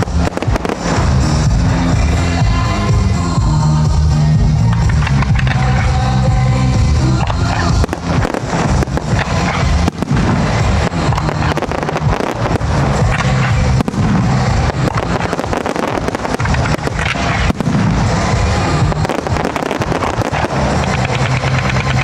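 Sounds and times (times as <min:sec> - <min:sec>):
firework shells bursting: 0:00.0 - 0:02.3, 0:07.2 - 0:22.0
background music with bass: 0:00.0 - 0:22.0.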